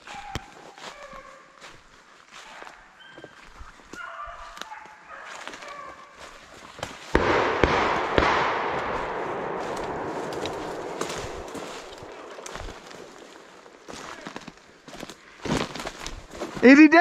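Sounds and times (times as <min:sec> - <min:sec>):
beagles baying: 0:00.0 - 0:06.6, 0:09.1 - 0:14.1
gunshots: 0:07.1 - 0:13.8.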